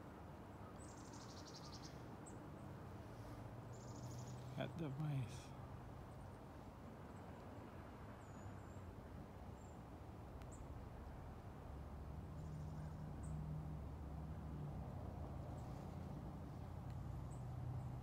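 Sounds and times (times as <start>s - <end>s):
faint high bird chirps: 0.6s - 2.4s, 3.7s - 4.7s
low vehicle engine hum: 9.6s - 18.0s.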